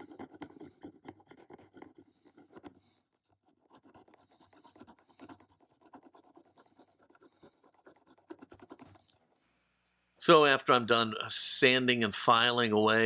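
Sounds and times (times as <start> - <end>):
hand file scraping metal: 0.0 - 9.0.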